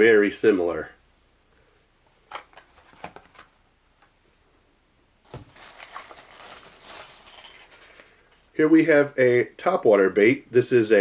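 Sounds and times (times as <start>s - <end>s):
plastic bag rustling: 5.3s - 8.6s.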